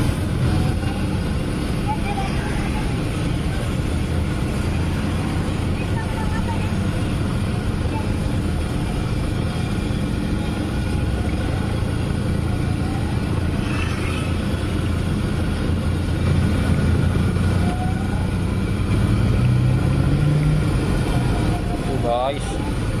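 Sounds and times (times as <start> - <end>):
passing engine: 0.0 - 23.0
road traffic rumble: 0.0 - 23.0.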